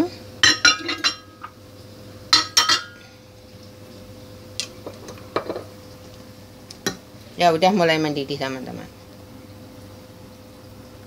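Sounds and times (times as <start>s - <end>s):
faint steady hum: 0.0s - 11.0s
utensils clinking against a wok: 0.4s - 1.5s, 2.4s - 3.0s.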